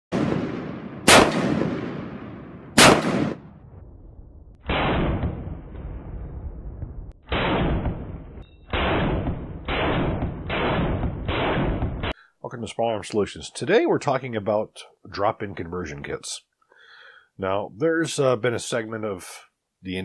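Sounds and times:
rifle gunshots: 0.1s - 3.6s, 4.6s - 6.1s, 7.2s - 12.2s.

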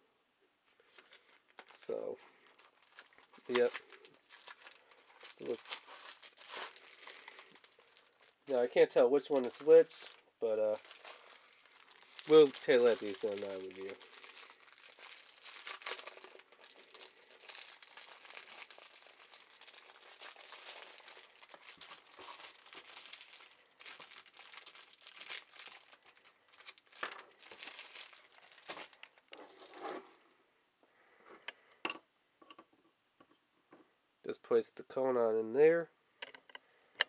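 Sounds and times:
packaging crinkling: 0.9s - 30.2s.

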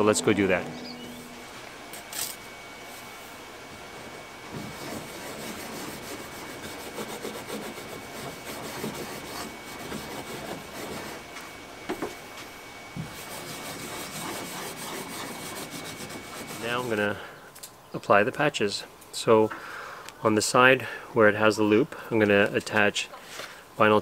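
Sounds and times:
cloth rubbing inside canoe hull: 2.5s - 11.5s, 12.9s - 17.0s.

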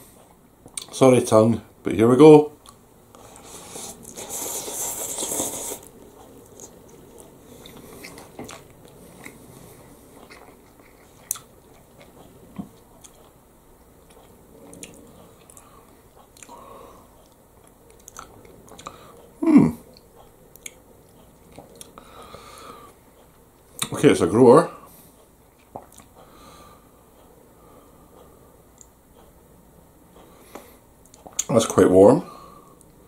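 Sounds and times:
quiet wet chewing: 2.6s - 24.0s, 25.2s - 26.4s, 30.1s - 31.5s
noodles being slurped: 3.2s - 5.9s.

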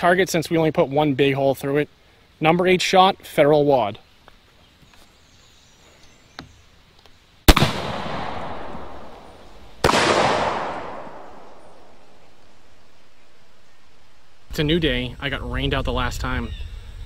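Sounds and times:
air rifle shot: 7.5s - 12.0s.

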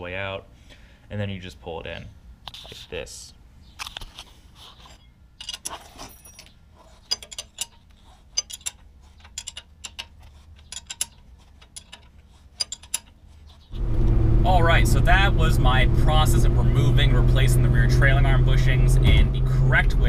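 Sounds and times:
ratchet wrench clicking: 7.1s - 7.8s, 8.4s - 13.2s.

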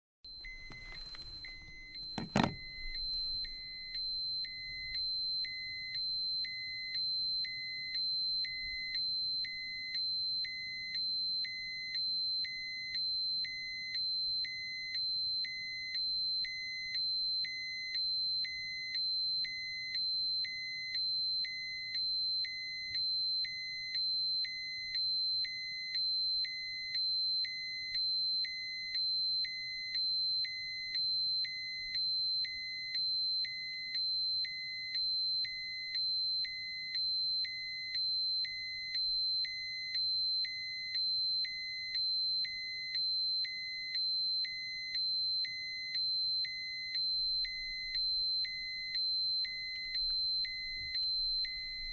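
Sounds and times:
high-pitched electronic alarm tone: 0.3s - 9.0s, 43.5s - 51.9s
low pulsing beep: 0.3s - 9.9s, 43.5s - 51.9s.

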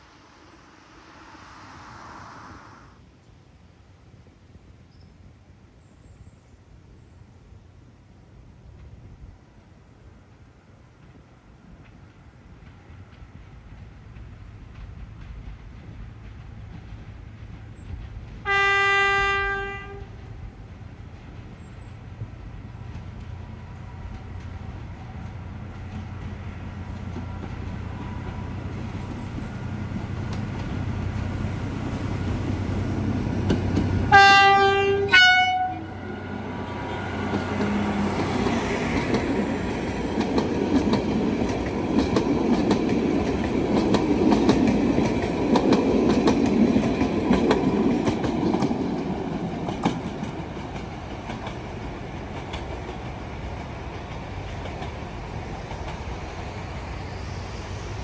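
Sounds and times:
diesel locomotive approaching: 0.0s - 4.0s, 5.8s - 58.0s
train wheels clattering on rails: 8.7s - 35.7s, 36.3s - 58.0s
train horn blasts: 18.4s - 20.2s, 34.0s - 37.2s.

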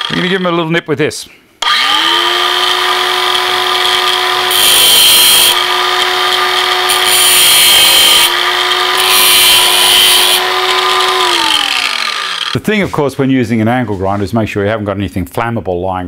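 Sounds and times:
angle grinder motor whine: 0.0s - 0.4s, 1.6s - 12.6s
grinding disc on steel screws: 3.8s - 12.6s.

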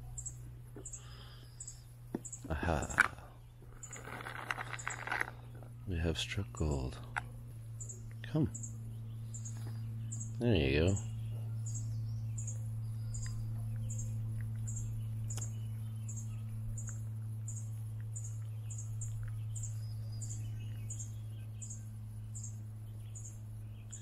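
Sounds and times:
small animal chirping: 0.0s - 3.0s, 3.7s - 5.3s, 7.2s - 24.0s
steady low hum: 0.0s - 24.0s.

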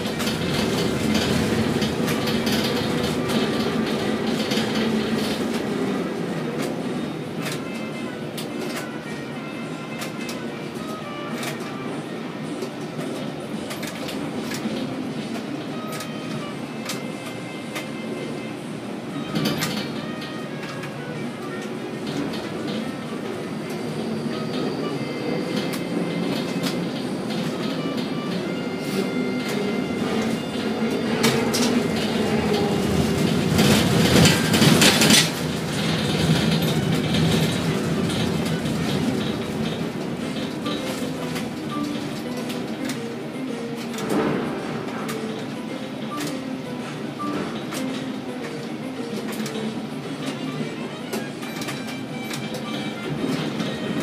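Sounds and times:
machinery clicks and knocks: 0.0s - 9.1s, 19.2s - 23.8s, 25.5s - 54.0s
crane machinery rumbling: 0.0s - 54.0s.

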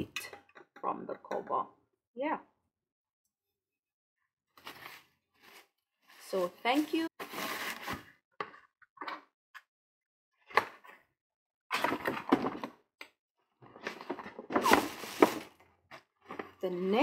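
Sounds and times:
paper bag rustling: 14.6s - 15.5s.

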